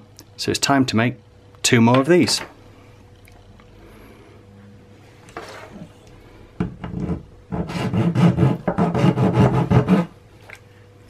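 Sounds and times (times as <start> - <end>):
metal file rasping on plastic: 6.9 - 10.1.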